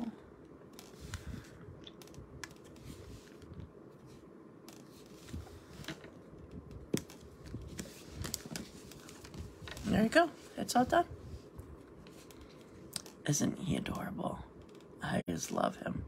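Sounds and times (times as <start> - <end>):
soft paper handling: 0.6 - 13.2.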